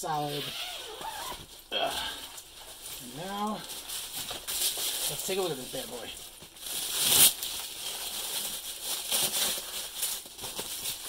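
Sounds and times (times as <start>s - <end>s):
plastic sleeve crinkling: 0.1s - 11.0s.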